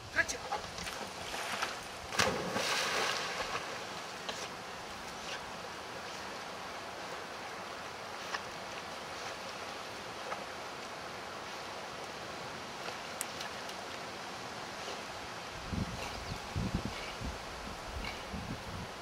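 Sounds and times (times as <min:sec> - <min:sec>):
dog swimming in water: 0:00.4 - 0:18.7
dog splashing into water: 0:01.3 - 0:03.9.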